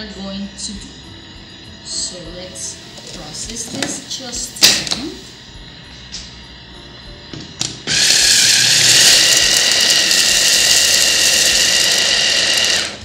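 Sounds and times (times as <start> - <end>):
food chopper motor whirring: 7.9 - 13.0.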